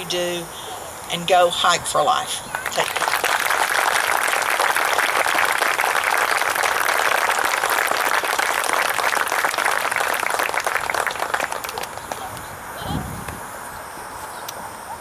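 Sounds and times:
crowd applauding: 2.6s - 12.4s.

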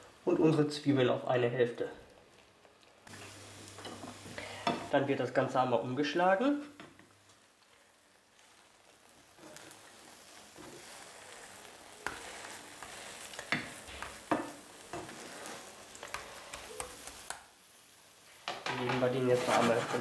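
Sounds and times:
omelette sizzling in a pan: 0.0s - 20.0s
spatula scraping a pan: 9.4s - 17.3s, 19.2s - 20.0s.

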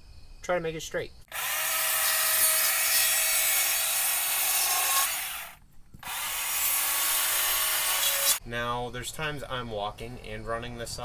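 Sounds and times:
chainsaw cutting log: 1.3s - 8.4s
chainsaw motor whine: 4.3s - 8.4s.

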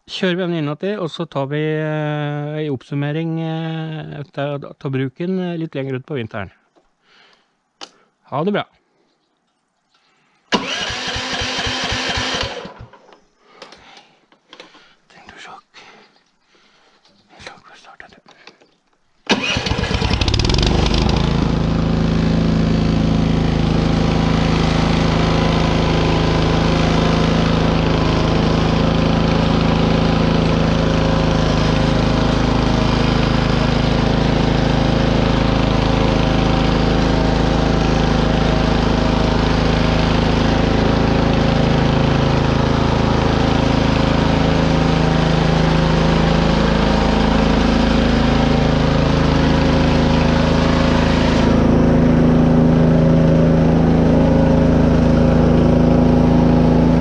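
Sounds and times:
petrol engine starting and running: 10.5s - 13.1s, 19.2s - 57.0s.

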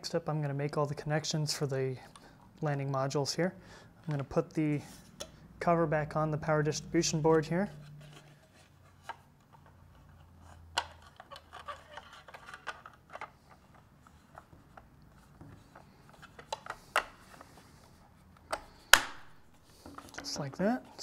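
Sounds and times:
clicks and taps of cover handling: 10.8s - 17.5s.

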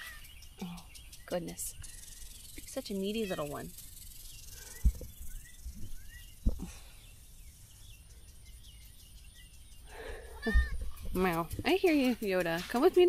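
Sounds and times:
faint bird chirps: 0.0s - 11.8s
insects humming: 0.0s - 12.2s
dull thumps: 4.8s - 6.8s.

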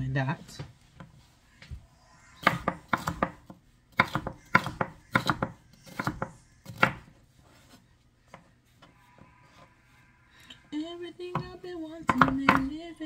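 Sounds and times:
knife chopping on cutting board: 2.4s - 7.1s, 11.3s - 12.7s.

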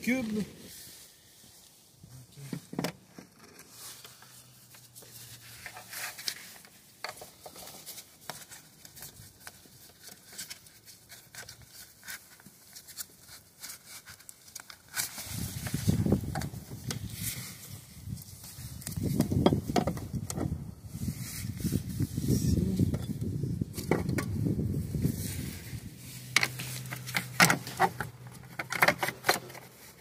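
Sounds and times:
cable rustling and scraping: 0.0s - 30.0s
muffled close rubbing: 15.3s - 28.5s.

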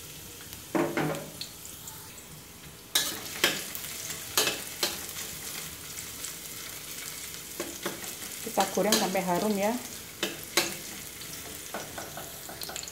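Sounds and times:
garlic sizzling in oil: 0.0s - 12.9s
metal spatula scraping a wok: 2.9s - 5.6s.

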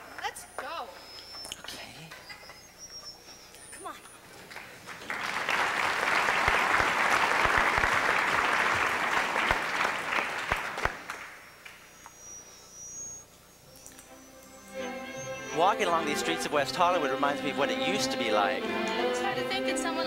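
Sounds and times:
audience applauding: 4.4s - 11.9s.

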